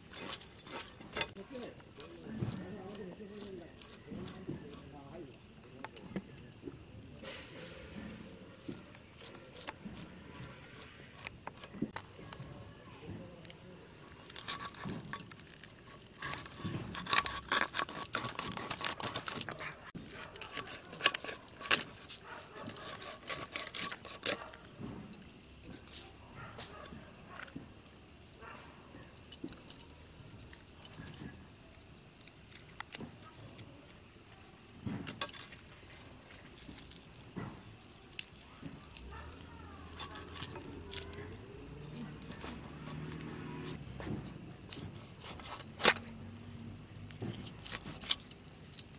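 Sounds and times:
metal blade scraping fish scales: 0:00.0 - 0:05.5, 0:07.2 - 0:12.0, 0:14.1 - 0:25.4, 0:44.7 - 0:46.2
fish being cleaned by hand: 0:00.0 - 0:48.9.

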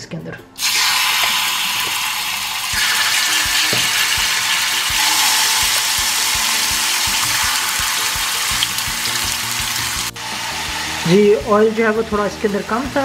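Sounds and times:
oil popping and crackling: 0:00.6 - 0:10.2
chicken sizzling in hot oil: 0:00.6 - 0:13.0.

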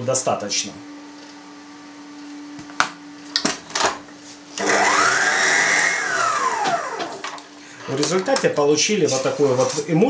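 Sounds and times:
stand mixer motor whining: 0:04.6 - 0:07.4.

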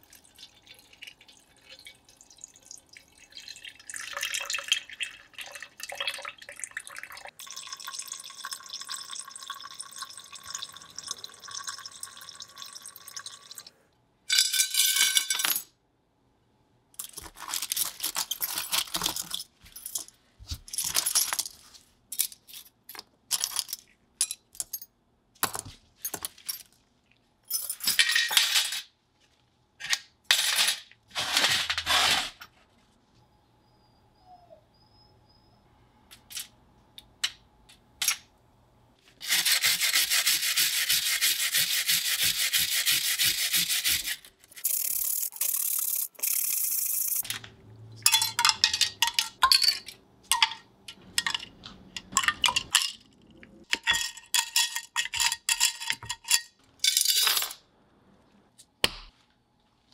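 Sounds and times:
liquid splashing in glass jar: 0:00.0 - 0:13.7.

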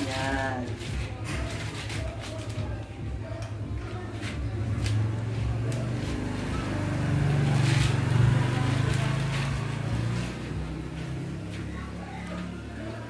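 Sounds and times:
vehicle engine humming: 0:03.2 - 0:13.0.

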